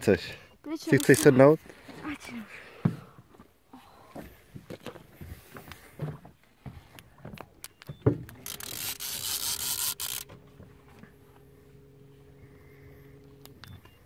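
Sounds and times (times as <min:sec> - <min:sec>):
fishing reel drag buzzing: 0:00.9 - 0:01.3, 0:08.3 - 0:10.3
steady low hum: 0:08.3 - 0:14.0.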